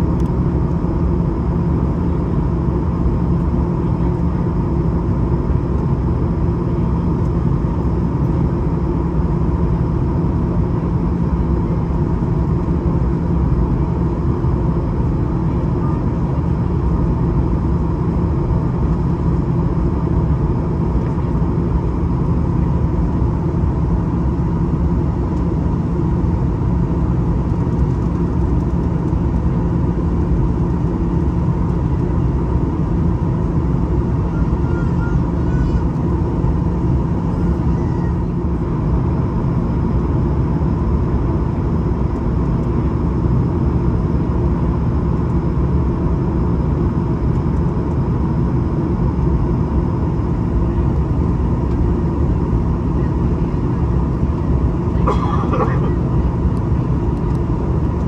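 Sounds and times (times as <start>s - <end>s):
airliner cabin engine drone: 0.0s - 58.0s
constant hums: 0.0s - 58.0s.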